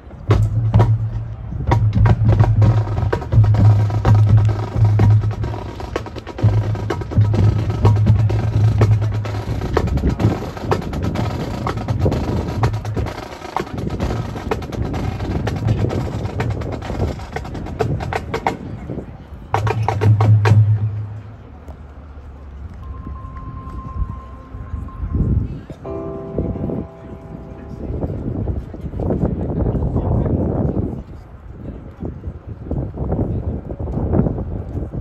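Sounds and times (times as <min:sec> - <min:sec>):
drum taps and strikes: 0:00.3 - 0:14.9
low tone: 0:22.7 - 0:29.3.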